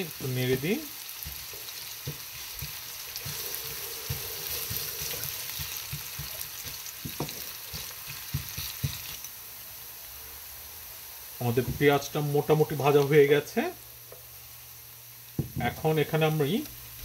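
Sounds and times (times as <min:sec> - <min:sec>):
onions sizzling in oil: 0:00.0 - 0:17.0
spatula knocking and scraping pan: 0:01.2 - 0:09.2.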